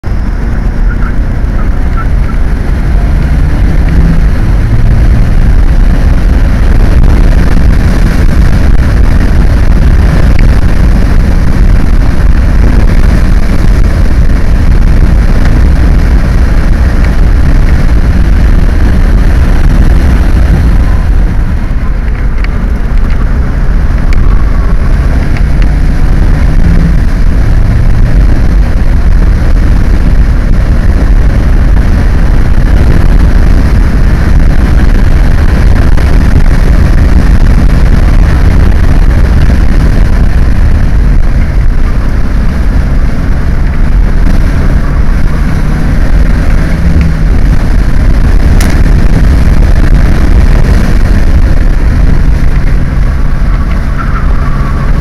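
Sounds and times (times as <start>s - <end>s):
car engine roar from inside: 0.0s - 55.0s.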